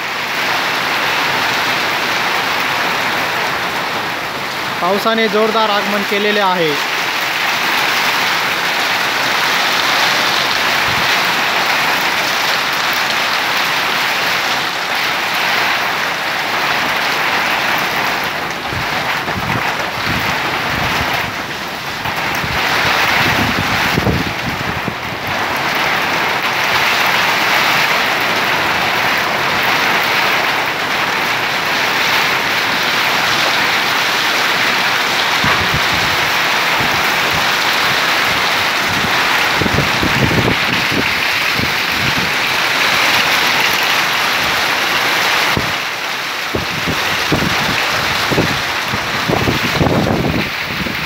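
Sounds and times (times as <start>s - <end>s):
heavy rain pouring: 0.0s - 51.0s
low gusty rumbles: 6.8s - 13.0s, 16.9s - 45.8s, 46.5s - 51.0s.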